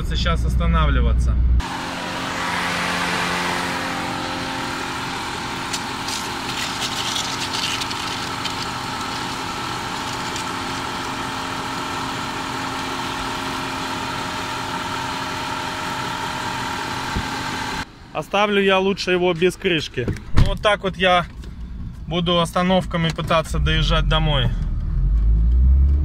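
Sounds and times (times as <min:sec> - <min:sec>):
car engine idling: 0:01.6 - 0:18.1.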